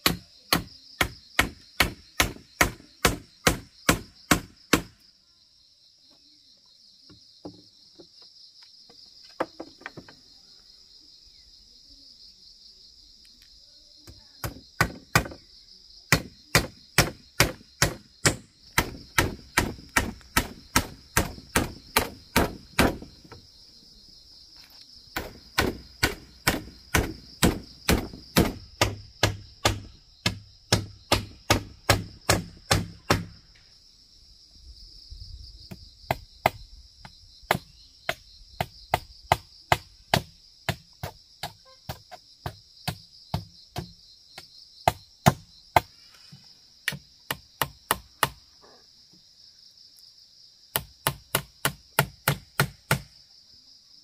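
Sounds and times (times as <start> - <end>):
hammer striking nails into wood: 0.0 - 4.9, 14.4 - 15.4, 16.1 - 23.1, 25.2 - 33.4, 50.7 - 53.1
high insect drone: 0.0 - 54.0.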